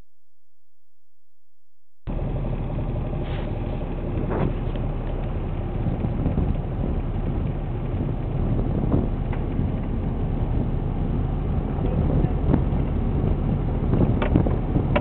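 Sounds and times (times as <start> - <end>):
motorboat engine running: 2.1 - 15.0
wind rushing on microphone: 4.2 - 15.0.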